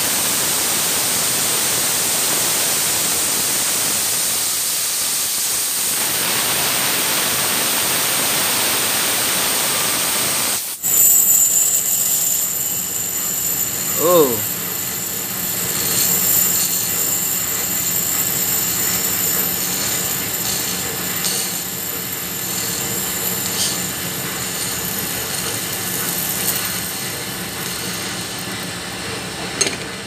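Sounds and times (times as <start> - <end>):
compressed air hiss: 3.4 - 28.8
high-pitched bearing whine: 10.8 - 30.0.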